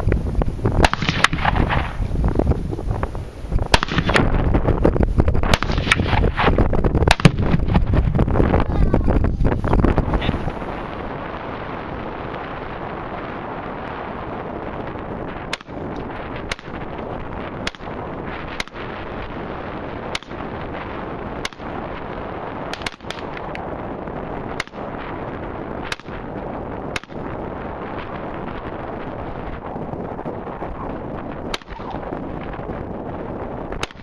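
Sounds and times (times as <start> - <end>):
wind on microphone: 0.0 - 34.0
rifle shots: 0.8 - 2.1, 3.7 - 4.5, 5.4 - 8.1, 15.5 - 15.8, 16.4 - 17.0, 17.6 - 18.9, 20.1 - 20.6, 21.4 - 21.8, 22.6 - 23.5, 31.5 - 32.2, 33.8 - 34.0.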